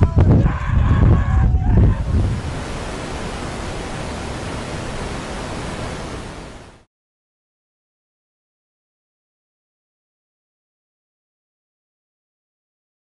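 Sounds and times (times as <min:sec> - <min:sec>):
wind on microphone: 0:00.0 - 0:06.7.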